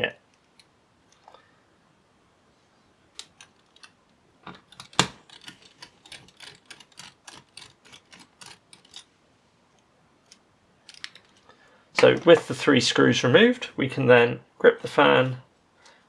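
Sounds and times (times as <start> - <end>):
screwdriver clicking on screws: 4.7 - 9.1.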